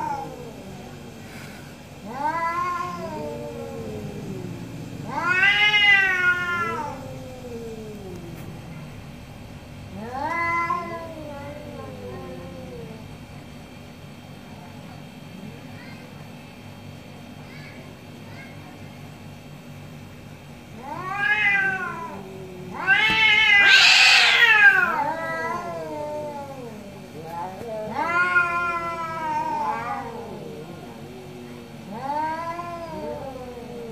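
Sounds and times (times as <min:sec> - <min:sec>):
cats yowling angrily: 0:00.0 - 0:01.3, 0:02.0 - 0:08.4, 0:09.9 - 0:13.0, 0:20.7 - 0:33.9
cat yowling angrily: 0:05.0 - 0:07.4, 0:20.8 - 0:26.8, 0:27.9 - 0:30.5.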